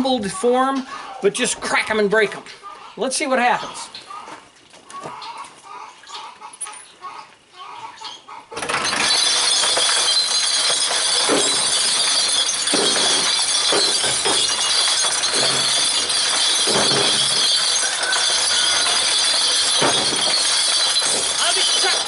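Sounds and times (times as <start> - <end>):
cement mixer tumbling bottles: 8.6 - 22.0
glass clinking and smashing: 8.6 - 22.0
rocks crashing into bottles: 8.6 - 22.0.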